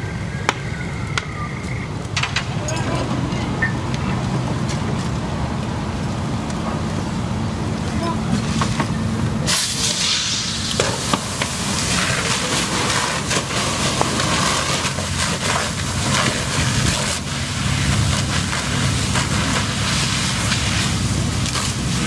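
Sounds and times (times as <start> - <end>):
low engine rumble: 0.0 - 22.0
sharp pops: 8.4 - 17.2
water spray hissing: 9.4 - 22.0.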